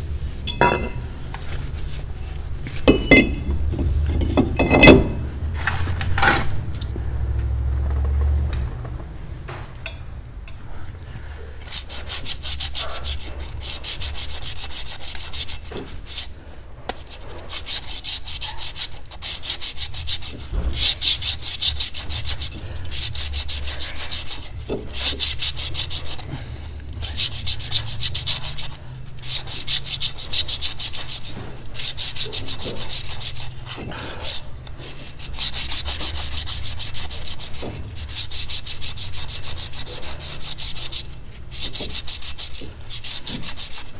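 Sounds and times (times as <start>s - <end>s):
sandpaper rubbing on brake disc: 1.4s - 2.8s, 11.6s - 43.9s.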